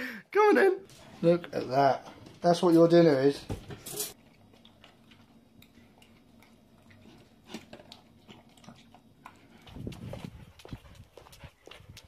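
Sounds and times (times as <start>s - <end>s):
dog licking and chewing: 4.2s - 12.0s.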